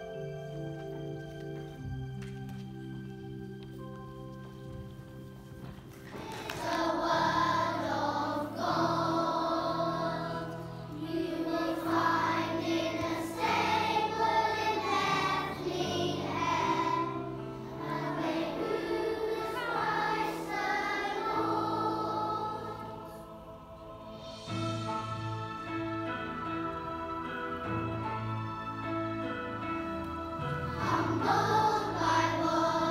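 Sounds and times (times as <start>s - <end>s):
instrumental accompaniment: 0.0s - 32.9s
children singing: 6.1s - 25.3s, 30.3s - 32.9s.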